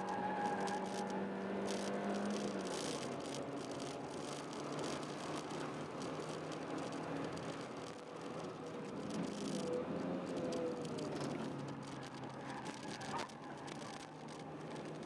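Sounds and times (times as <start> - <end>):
road and wind noise: 0.0 - 15.0.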